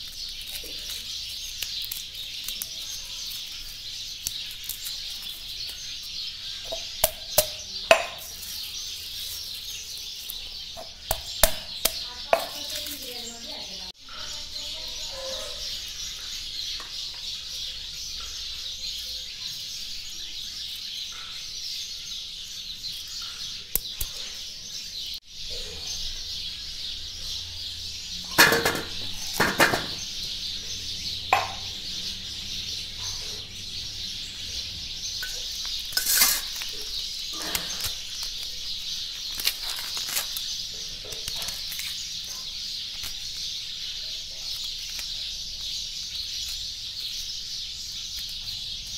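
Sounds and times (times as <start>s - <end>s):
onions knocking on steel plate: 6.7s - 8.4s, 28.4s - 30.0s, 31.3s - 31.7s.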